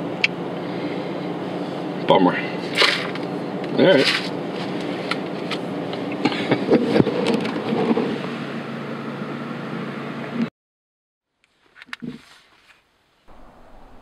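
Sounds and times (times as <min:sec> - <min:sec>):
vehicle engine idling: 0:00.0 - 0:10.3, 0:13.3 - 0:14.0.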